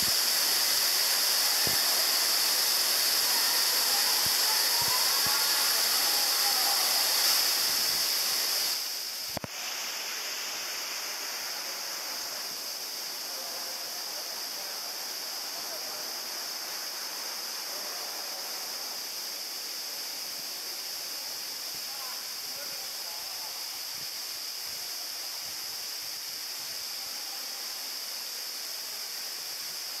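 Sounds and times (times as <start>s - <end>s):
stream flowing over rocks: 0.0s - 11.5s
waterfall rushing: 0.0s - 12.5s.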